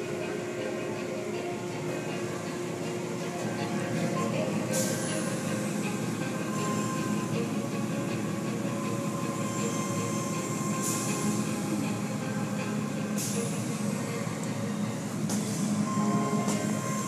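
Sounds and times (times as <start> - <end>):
car wash machinery hum: 0.0 - 17.0.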